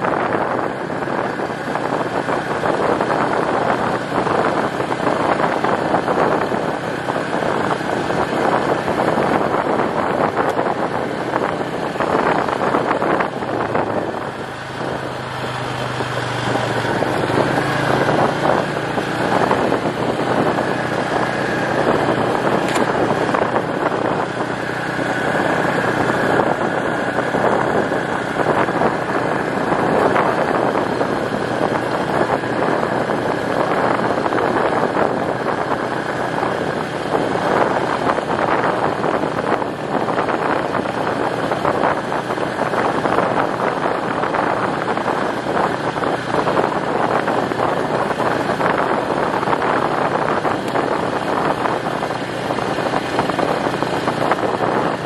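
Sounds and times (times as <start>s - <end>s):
vehicle engine running: 0.0s - 55.0s
tyres on gravel: 19.0s - 25.6s.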